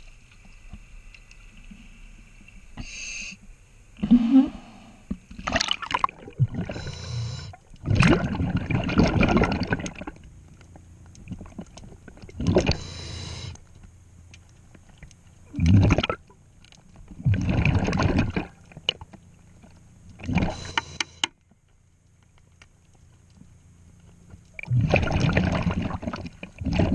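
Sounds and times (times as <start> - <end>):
scuba regulator breathing underwater: 6.6 - 7.6, 12.6 - 13.6, 20.3 - 21.2.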